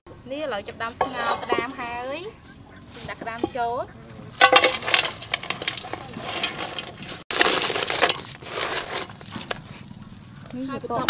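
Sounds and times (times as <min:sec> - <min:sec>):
crab shells clattering on metal: 0:01.0 - 0:09.6.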